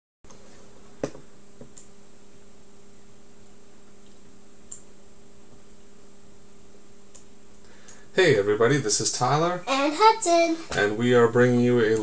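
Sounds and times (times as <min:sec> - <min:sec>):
faint high whine: 0:00.3 - 0:12.0
low electrical hum: 0:00.3 - 0:12.0
small clicks: 0:04.0 - 0:04.9.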